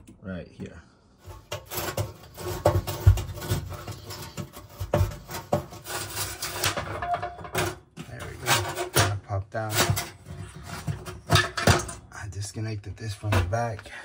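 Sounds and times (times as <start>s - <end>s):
metal parts scraping and clicking: 1.2s - 12.0s.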